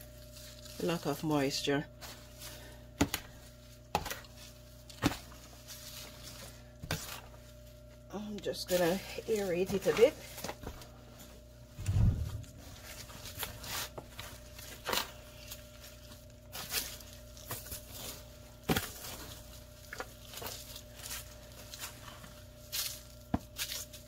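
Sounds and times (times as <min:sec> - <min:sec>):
metal tines raking through compost: 0:00.0 - 0:02.7.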